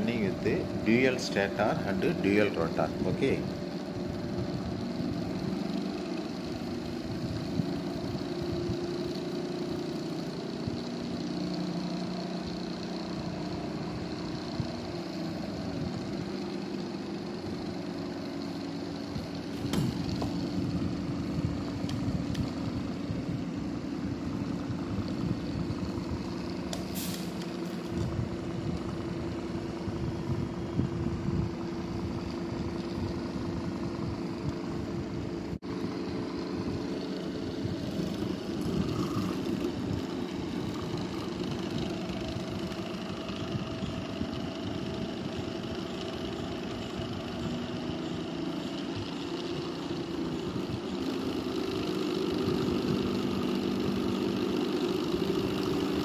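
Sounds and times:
electric motor humming: 0.0 - 56.0.

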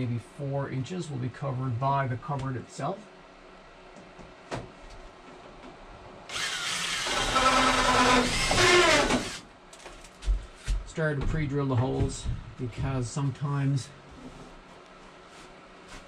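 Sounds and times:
power drill whining: 6.3 - 9.4.

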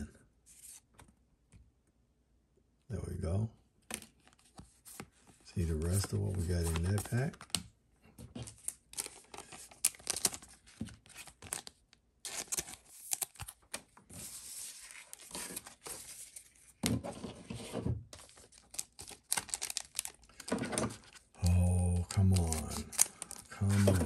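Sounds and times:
wrapper crinkling and tearing: 8.6 - 13.8, 18.2 - 24.0.

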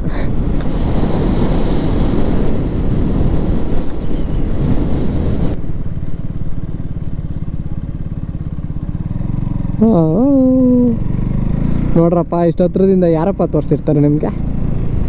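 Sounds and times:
wind rushing over microphone: 0.0 - 6.0
motorcycle engine running: 1.7 - 15.0.

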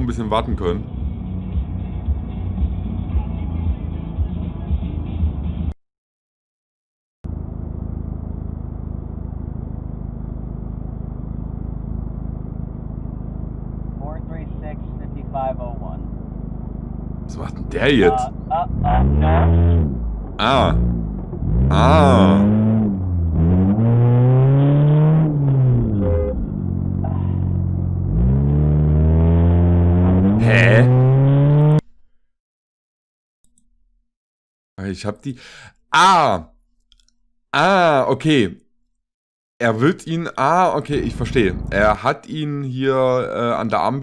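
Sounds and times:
dull background rumble: 0.0 - 5.4, 7.3 - 24.1, 40.1 - 42.2
car engine accelerating: 0.2 - 3.2, 15.8 - 31.8, 40.4 - 42.0
car engine idling: 40.4 - 42.0.

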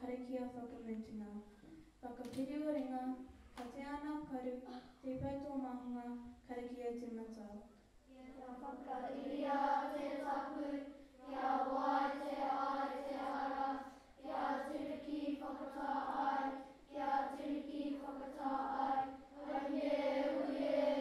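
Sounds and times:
children singing in unison: 8.8 - 21.0.

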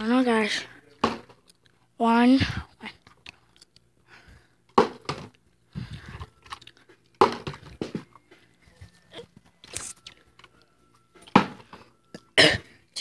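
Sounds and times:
plastic bottle landing knocks: 7.2 - 8.0.

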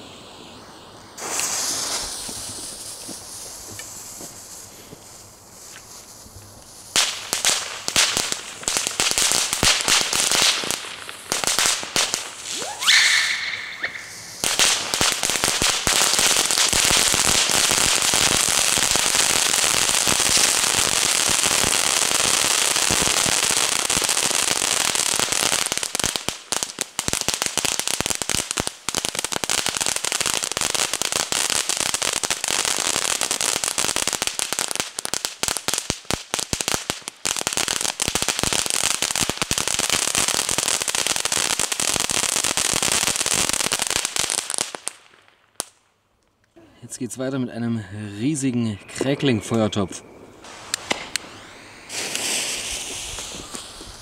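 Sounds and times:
hiss of spraying sparks: 0.0 - 7.4, 50.4 - 54.0
firework cracks: 0.0 - 46.0, 49.5 - 54.0
rising whistle: 12.5 - 14.4, 48.5 - 54.0.

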